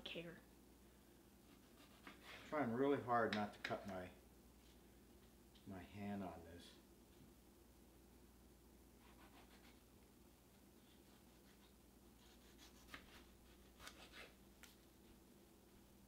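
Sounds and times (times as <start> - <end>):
knife slicing tomato: 11.0 - 14.4.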